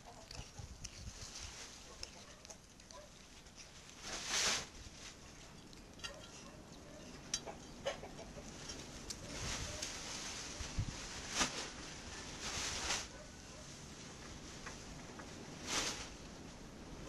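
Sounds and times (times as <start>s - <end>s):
cat eating and licking: 0.0s - 15.6s.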